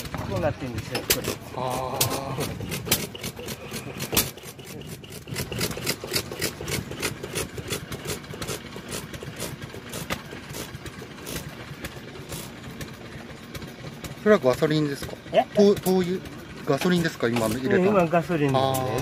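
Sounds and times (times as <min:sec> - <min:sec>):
stationary engine clattering: 0:00.0 - 0:19.0.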